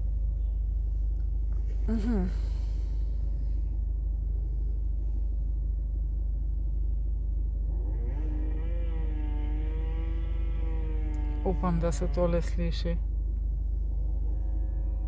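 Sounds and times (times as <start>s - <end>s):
motorcycle engine revving: 7.7s - 12.4s.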